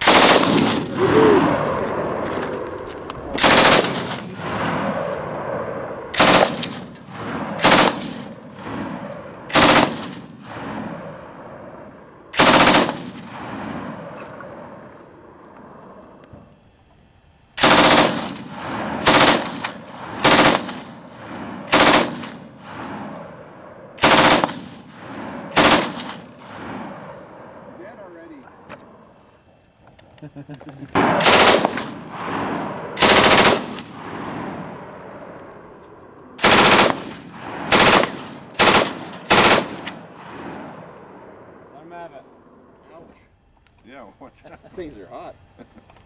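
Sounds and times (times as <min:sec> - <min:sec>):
machine gun firing bursts: 0:00.0 - 0:00.9, 0:03.4 - 0:04.6, 0:06.2 - 0:08.4, 0:09.5 - 0:10.8, 0:12.4 - 0:13.4, 0:17.6 - 0:22.4, 0:24.0 - 0:26.3, 0:31.0 - 0:34.0, 0:36.4 - 0:40.2.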